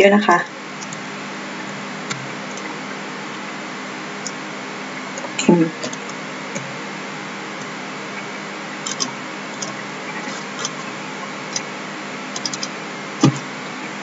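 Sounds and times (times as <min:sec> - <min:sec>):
computer keyboard taps: 0:12.4 - 0:13.4.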